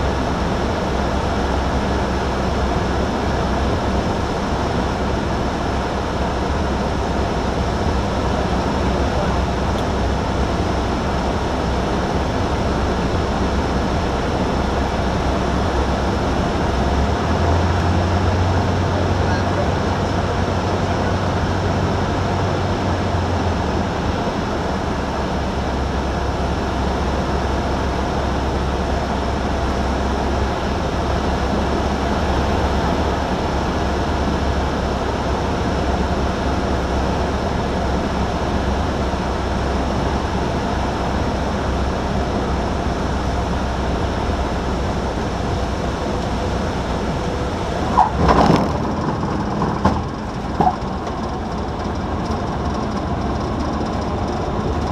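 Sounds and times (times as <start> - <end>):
light aircraft engine running: 0.0 - 54.9
tyre squeaks on runway: 47.9 - 49.6.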